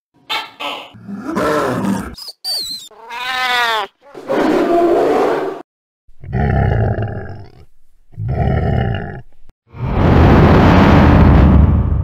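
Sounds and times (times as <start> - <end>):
rough animal roars: 1.0 - 2.2, 6.2 - 9.4
animal cry falling in pitch: 2.9 - 3.9.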